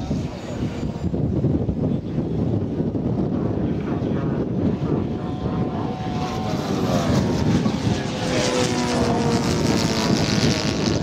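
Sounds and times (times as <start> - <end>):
model plane engine droning: 3.1 - 11.0.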